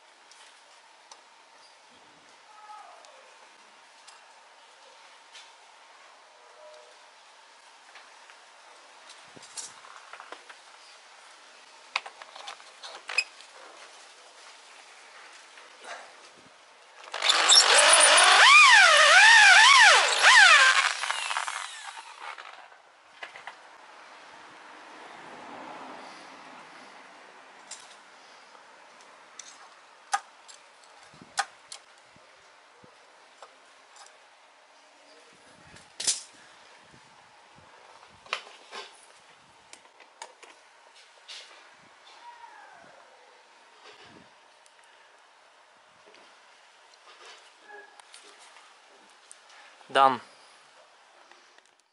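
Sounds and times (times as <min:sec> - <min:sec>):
electric drill with hole saw cutting: 0:17.1 - 0:22.6.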